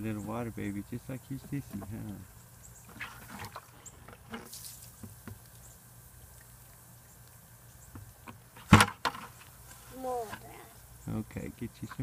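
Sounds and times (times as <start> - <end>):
water dripping from bucket: 0.0 - 8.6
bucket thumping on ground: 2.9 - 5.4, 8.6 - 9.4.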